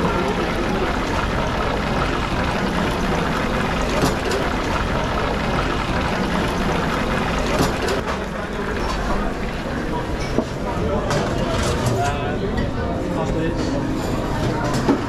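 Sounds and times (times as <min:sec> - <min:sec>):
oil bubbling and sizzling: 0:00.0 - 0:11.5.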